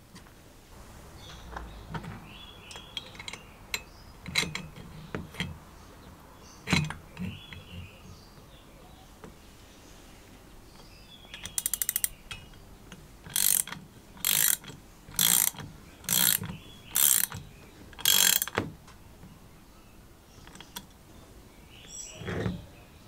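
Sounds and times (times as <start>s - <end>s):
ratcheting wrench clicking: 2.7s - 5.6s, 11.3s - 12.6s, 13.2s - 18.6s.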